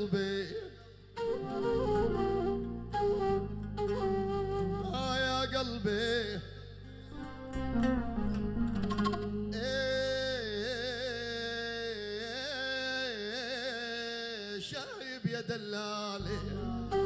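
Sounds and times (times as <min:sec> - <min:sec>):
man singing ornamented phrase: 0:00.0 - 0:01.7, 0:04.8 - 0:06.6, 0:09.5 - 0:17.0
low instrumental backing: 0:01.2 - 0:10.6, 0:16.2 - 0:17.0.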